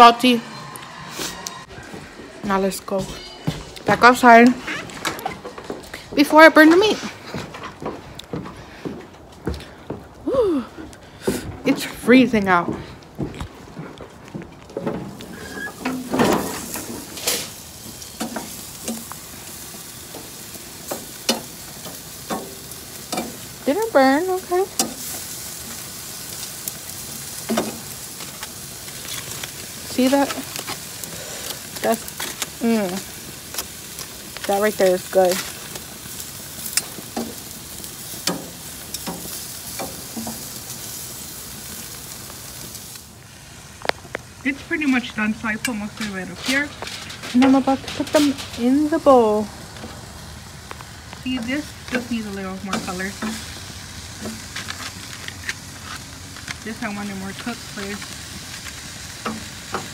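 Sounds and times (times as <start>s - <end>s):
meat sizzling on a grill: 0.0s - 1.7s, 3.8s - 7.0s, 14.6s - 59.9s
metal tongs clattering on grate: 14.8s - 35.9s, 36.6s - 40.8s, 45.5s - 49.3s.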